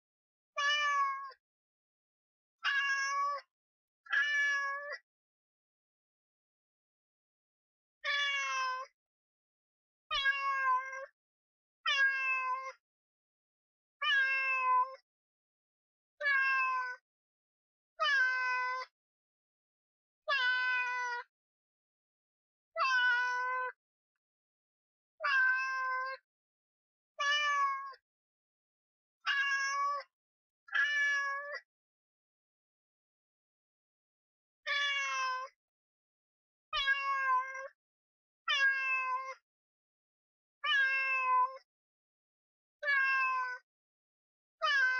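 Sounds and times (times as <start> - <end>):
cat meowing: 0.6 - 1.3, 2.6 - 3.5, 4.1 - 5.0, 8.0 - 8.9, 10.1 - 11.0, 11.9 - 12.7, 14.0 - 15.0, 16.2 - 17.0, 22.8 - 23.8, 25.2 - 26.2, 27.2 - 28.0, 29.3 - 30.1, 30.7 - 31.6, 34.7 - 35.5, 36.8 - 37.7, 38.5 - 39.4, 40.6 - 41.6, 42.8 - 43.6, 44.6 - 44.9.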